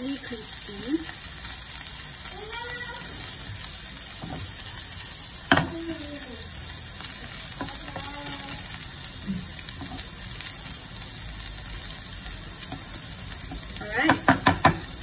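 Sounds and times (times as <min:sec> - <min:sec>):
food sizzling in oil: 0:00.0 - 0:15.0
spatula knocking on pan: 0:05.5 - 0:05.7, 0:13.5 - 0:14.9.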